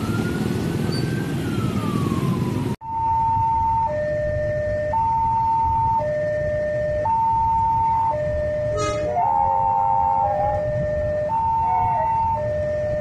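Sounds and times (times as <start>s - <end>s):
ambulance siren: 0.0s - 13.0s
level crossing alarm two-tone: 2.8s - 13.0s.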